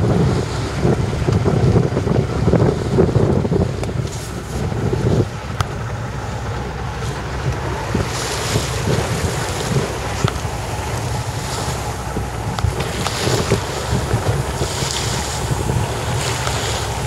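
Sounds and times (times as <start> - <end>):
choppy water wash: 0.0 - 17.0
wind buffeting microphone: 0.0 - 17.0.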